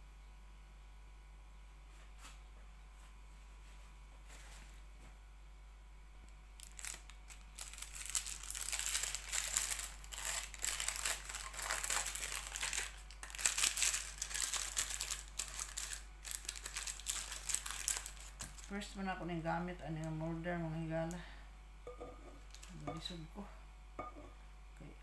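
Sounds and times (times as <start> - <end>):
paper liners crinkling: 6.6 - 18.8.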